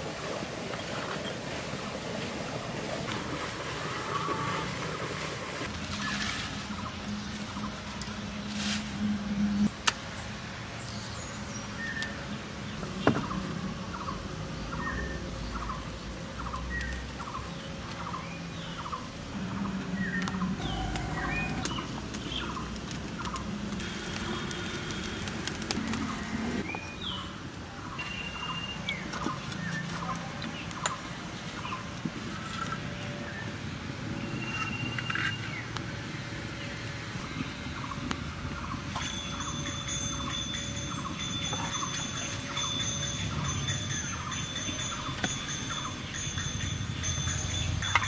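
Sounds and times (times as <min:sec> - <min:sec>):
bird chirping: 0:38.6 - 0:48.0.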